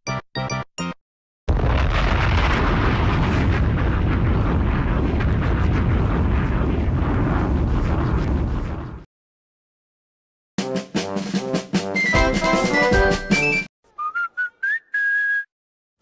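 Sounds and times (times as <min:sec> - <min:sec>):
loud steady rumbling: 0:02.0 - 0:09.0.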